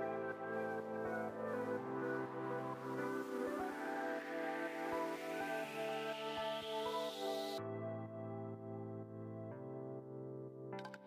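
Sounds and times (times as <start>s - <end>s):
ambient music chords: 0.0s - 11.0s.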